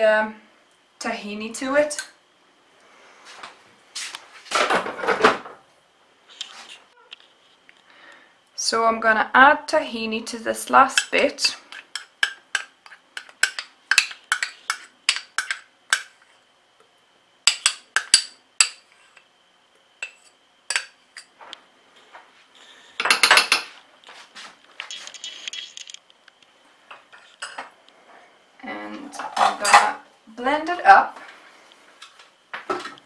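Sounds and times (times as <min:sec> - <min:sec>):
spoon scraping clatter: 0:11.0 - 0:16.2, 0:20.0 - 0:21.3, 0:24.9 - 0:26.0.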